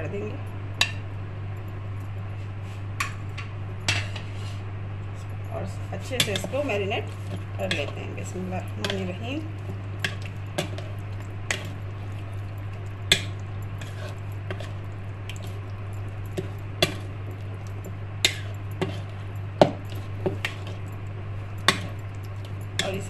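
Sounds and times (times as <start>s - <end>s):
steady low hum: 0.0s - 23.0s
wet squishing of marinade: 5.9s - 23.0s.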